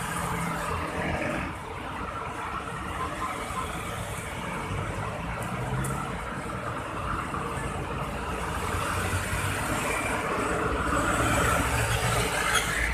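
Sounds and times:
motorcycle: 0:00.0 - 0:02.5, 0:05.3 - 0:12.9
bus passing: 0:00.0 - 0:12.9
road traffic passing: 0:00.0 - 0:12.9.

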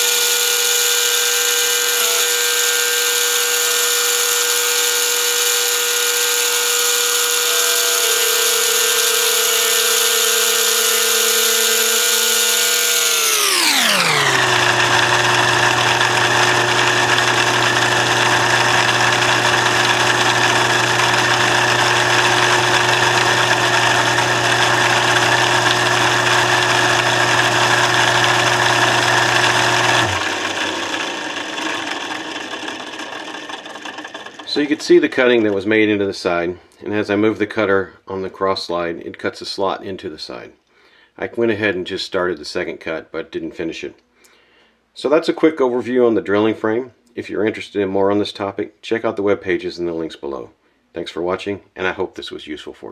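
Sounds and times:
machine whine: 0:00.0 - 0:35.5.

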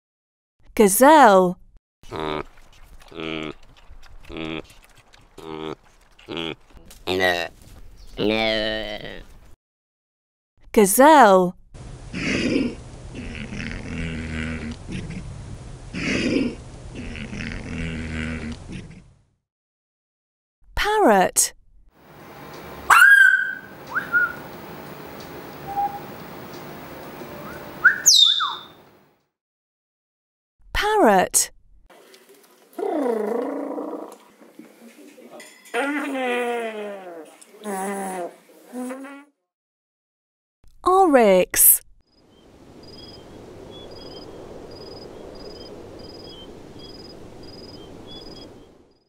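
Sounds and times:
small birds chirping: 0:07.8 - 0:08.3, 0:22.2 - 0:28.9, 0:42.2 - 0:49.0
parrot whistling: 0:22.9 - 0:24.5, 0:25.6 - 0:26.2, 0:27.4 - 0:28.8
low rushing background: 0:42.3 - 0:49.0.

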